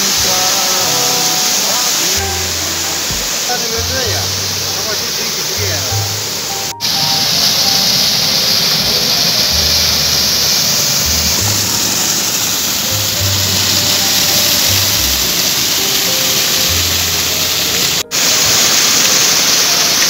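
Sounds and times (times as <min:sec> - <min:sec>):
background music with bass line: 0:00.0 - 0:04.8, 0:05.5 - 0:07.8, 0:08.8 - 0:12.0, 0:12.8 - 0:18.2
falling water rushing: 0:00.0 - 0:20.0.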